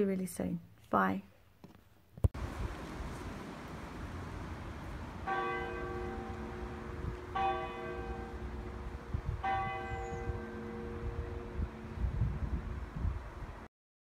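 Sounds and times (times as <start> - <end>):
church bell ringing: 5.2 - 12.8.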